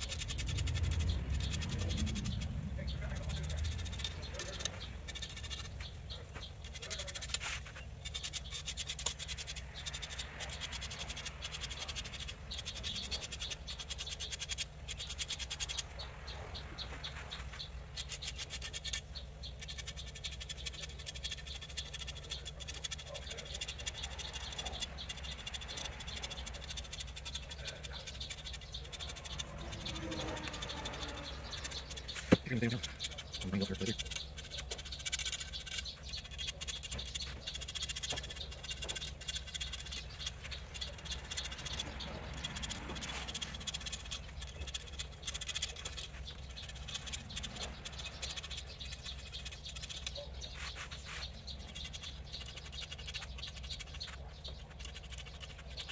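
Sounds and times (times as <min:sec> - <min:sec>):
marker pen scratching: 0:00.0 - 0:55.9.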